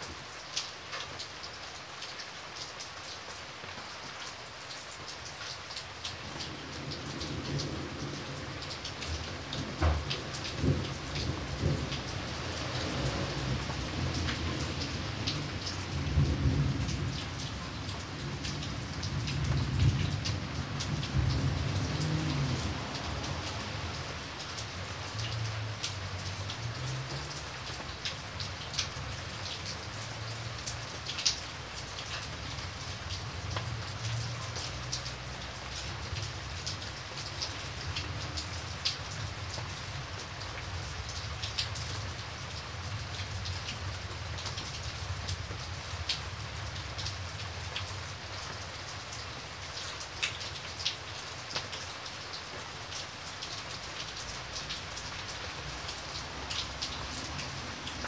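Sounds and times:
heavy rain: 0.0 - 58.0
low thunder rumble: 6.6 - 23.9.

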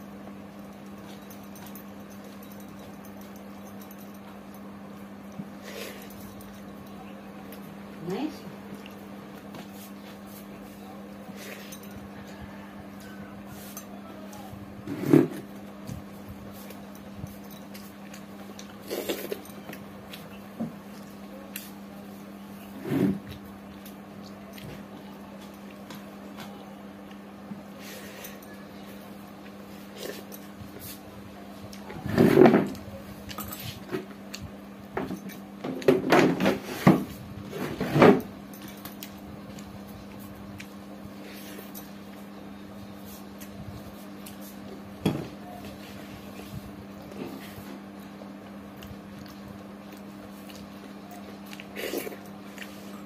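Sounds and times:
steady low hum: 0.0 - 53.0
mouth eating sounds: 48.8 - 52.8.

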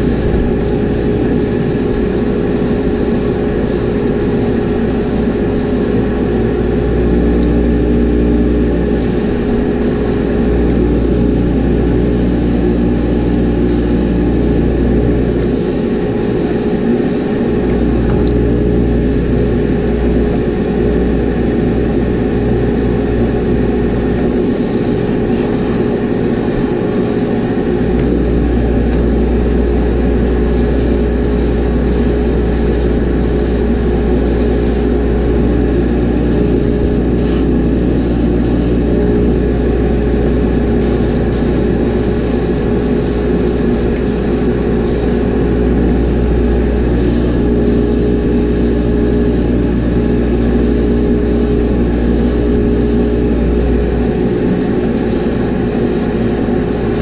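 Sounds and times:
airbrush spraying hisses: 0.0 - 6.2, 9.0 - 10.3, 12.1 - 14.2, 15.4 - 17.4, 24.5 - 27.5, 30.5 - 35.0, 36.3 - 38.8, 40.8 - 45.2, 47.0 - 49.6, 50.4 - 53.2, 55.0 - 57.0
exhaust fan hum: 0.0 - 57.0.

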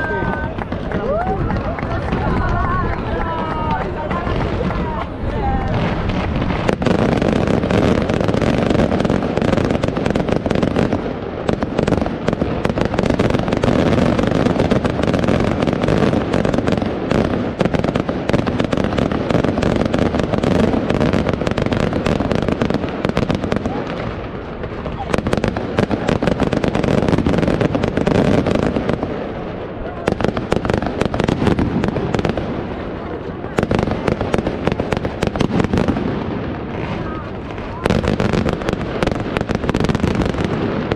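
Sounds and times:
fireworks bursts and crackling: 0.0 - 40.9.

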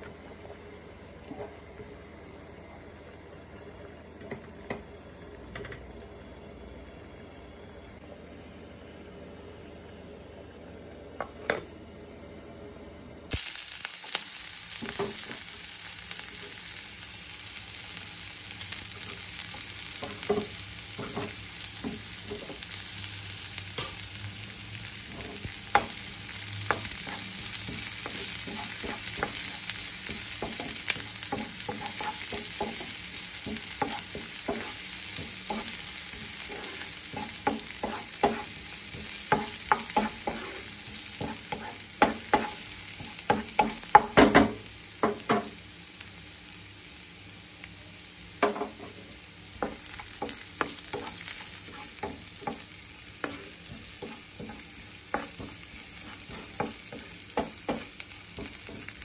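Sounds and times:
garlic sizzling in hot oil: 13.3 - 59.0
spatula scraping and knocking pan: 20.0 - 22.6, 25.1 - 45.5, 48.4 - 59.0.

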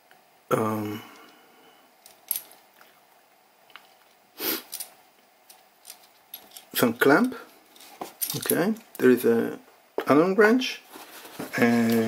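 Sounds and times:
man humming: 0.5 - 1.4.

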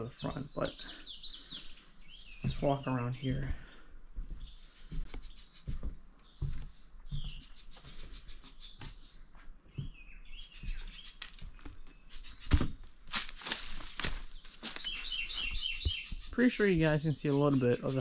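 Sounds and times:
bird chirps: 0.0 - 12.8, 14.2 - 18.0
footsteps on overgrown ground: 1.2 - 17.8
vegetation rustling: 10.7 - 16.7
loud crunch: 12.4 - 16.0.

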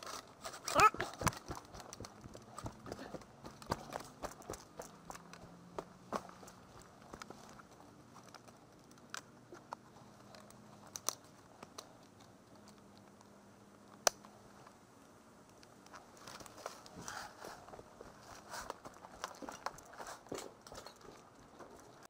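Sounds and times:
sharp clicks and ticks: 0.7 - 14.3.

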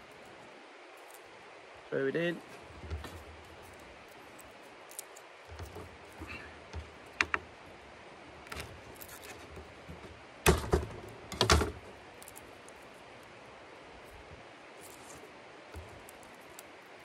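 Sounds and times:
loud thunks on board: 10.4 - 11.8.

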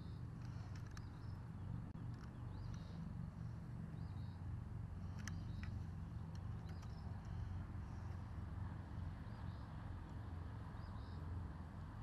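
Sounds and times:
faint bird chirps: 0.0 - 4.4, 5.0 - 8.2, 10.8 - 11.2
small sharp clicks: 0.4 - 1.4, 2.0 - 3.0, 5.0 - 7.4.

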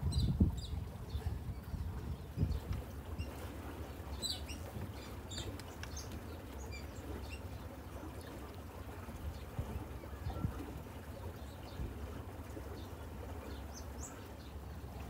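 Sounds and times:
birds chirping: 0.1 - 8.5.

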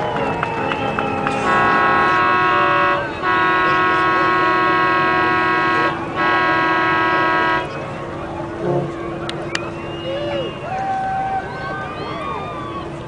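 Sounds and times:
boat horns blasting: 0.6 - 10.6.

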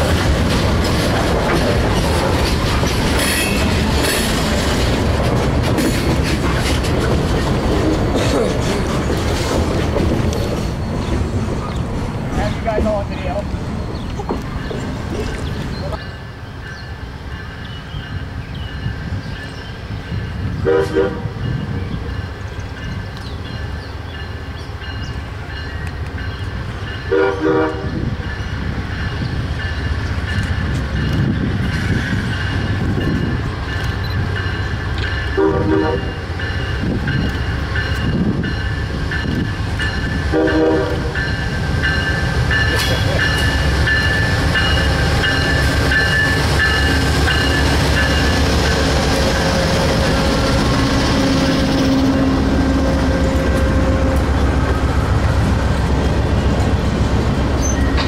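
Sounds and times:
train rumble: 0.0 - 58.0
locomotive horn blasts: 20.6 - 21.4, 27.1 - 28.0, 35.4 - 36.2, 40.3 - 41.2.

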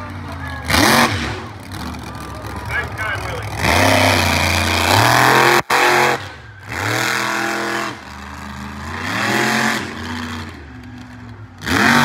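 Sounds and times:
truck engine revving: 0.0 - 12.0.

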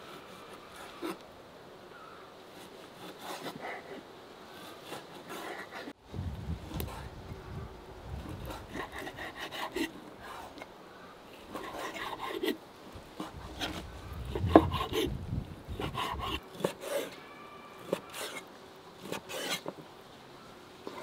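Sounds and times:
knife sawing through meat: 2.6 - 5.9, 8.3 - 10.6, 15.7 - 17.1, 17.8 - 18.4, 19.0 - 19.7
knife scraping and tapping wood: 13.2 - 15.1, 19.0 - 19.8.

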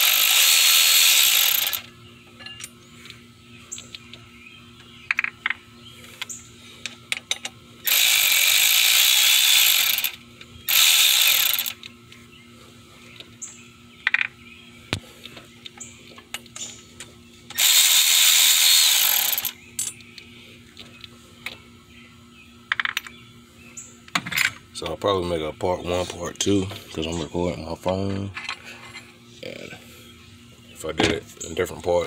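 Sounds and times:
ratchet wrench clicking: 0.0 - 1.8, 7.9 - 11.8, 17.5 - 19.9
metal tools clinking: 2.4 - 2.7.

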